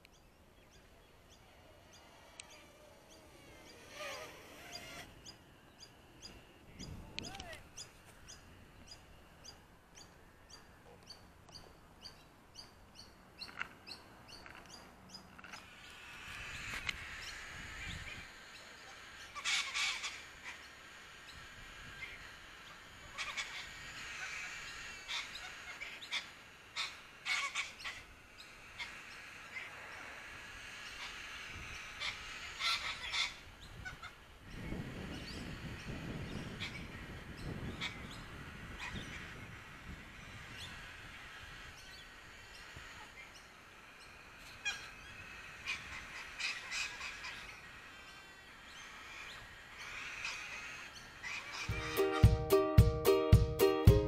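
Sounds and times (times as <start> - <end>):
harsh bird calls: 0.0 - 54.0
cockatoos squawking: 0.6 - 5.4, 15.4 - 34.3, 35.2 - 54.0.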